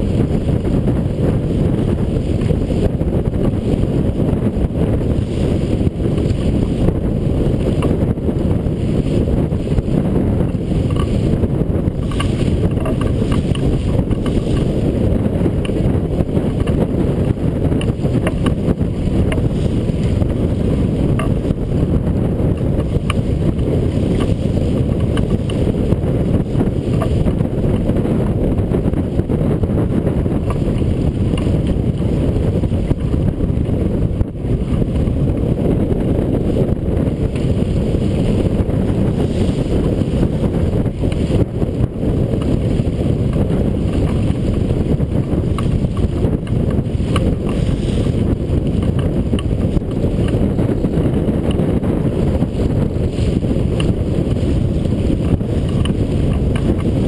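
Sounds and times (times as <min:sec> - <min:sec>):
water washing along hull: 0:00.0 - 0:57.0
wind buffeting microphone: 0:00.0 - 0:57.0.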